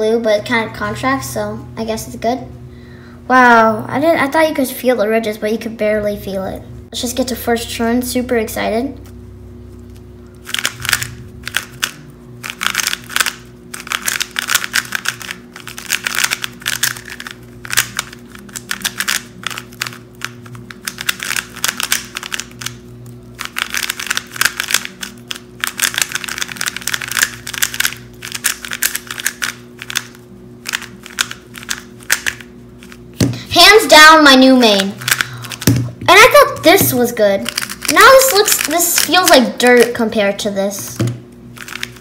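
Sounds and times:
puzzle cube turning clicks: 10.4 - 22.8, 23.4 - 33.0, 34.7 - 35.7, 36.6 - 40.0, 41.6 - 42.0.

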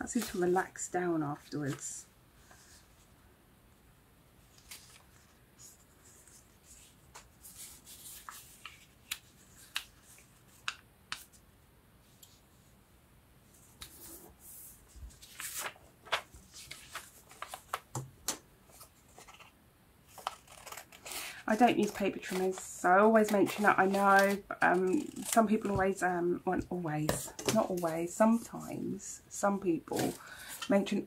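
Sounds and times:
paper rustling: 4.5 - 11.4, 13.6 - 19.5, 20.1 - 26.0, 29.9 - 30.7.

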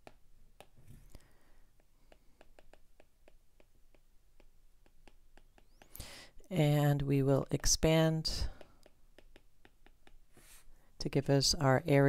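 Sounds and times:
stylus tapping on glass screen: 2.0 - 6.0.

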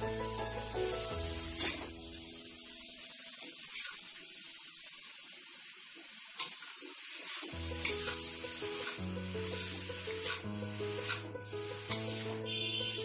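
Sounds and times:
background music: 0.0 - 2.6, 7.6 - 13.0
noodles sizzling in a pan: 0.0 - 13.0.

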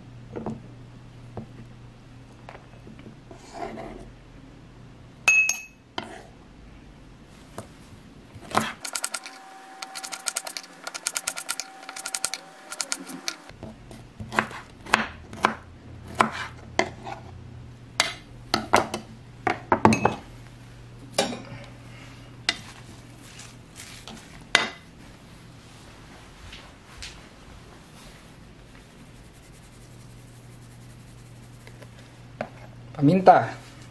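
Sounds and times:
knife chopping on wooden board: 8.4 - 13.5, 14.2 - 17.2.

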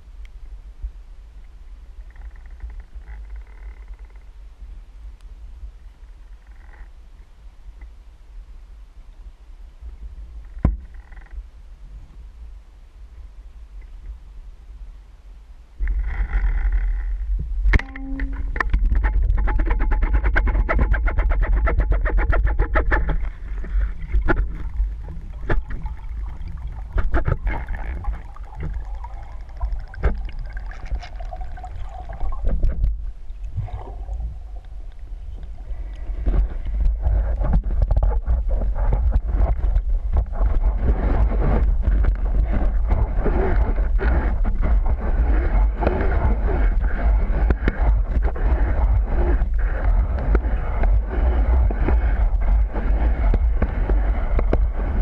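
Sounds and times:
underwater low rumble: 0.0 - 55.0
water crackling and clicking: 15.8 - 55.0.

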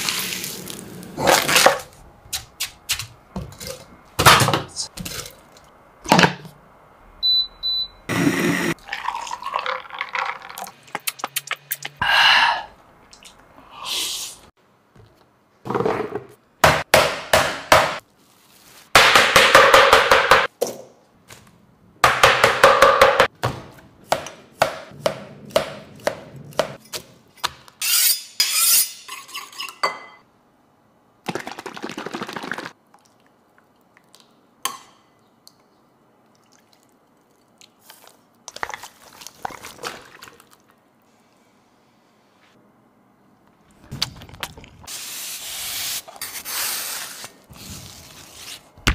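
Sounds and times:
sauce pouring into bowl: 8.8 - 11.4.

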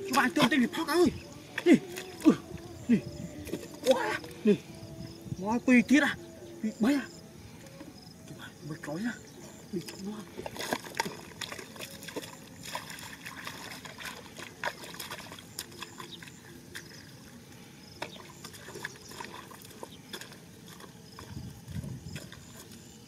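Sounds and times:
feet sloshing through mud: 0.0 - 4.5, 9.7 - 23.0.

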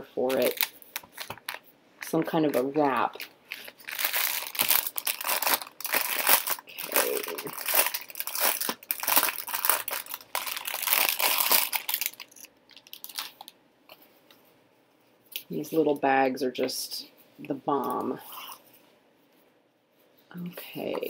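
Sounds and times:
plastic bag crinkling: 0.3 - 13.6.

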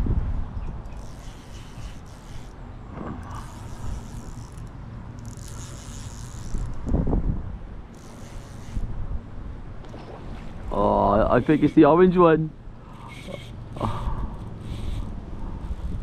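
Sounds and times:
wind buffeting microphone: 0.0 - 2.0, 6.4 - 7.9.

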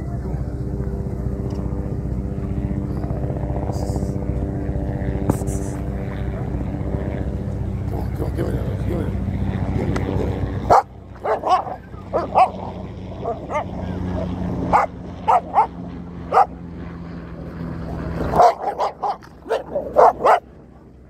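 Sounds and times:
dogs barking and yipping: 10.6 - 16.6, 18.2 - 20.5.

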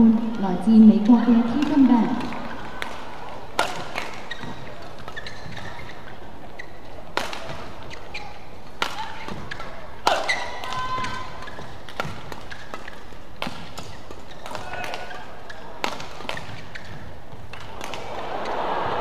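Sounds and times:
indoor arena hum: 0.0 - 19.0
rackets striking shuttlecock: 1.0 - 6.0, 6.6 - 18.2
shoe squeaks on court: 3.9 - 7.0, 7.8 - 8.5, 9.2 - 10.6, 12.4 - 13.1, 13.8 - 17.2.

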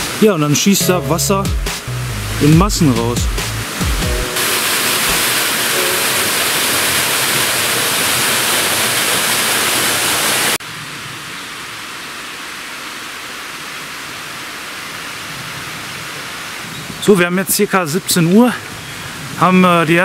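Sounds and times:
stream rushing: 0.0 - 20.0
waterfall rushing over rocks: 2.4 - 20.0.

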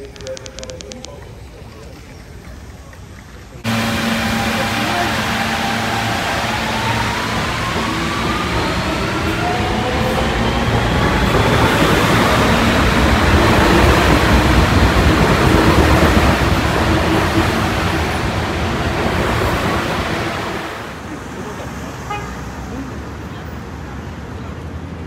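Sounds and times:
subway train rumbling past: 1.4 - 25.0
train motors whining: 3.6 - 20.8.

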